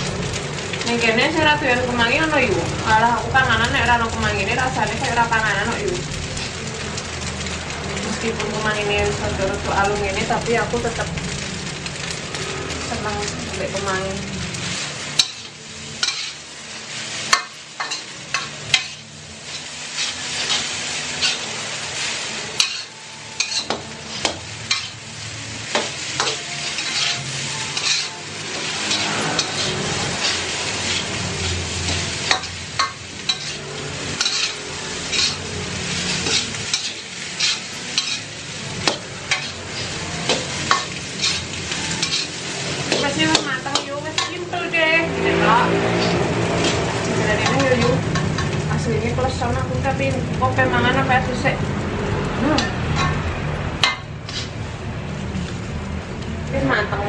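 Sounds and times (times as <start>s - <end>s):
rice sizzling in a wok: 0.0s - 57.0s
metal spatula scraping a wok: 14.6s - 48.7s, 52.6s - 54.7s.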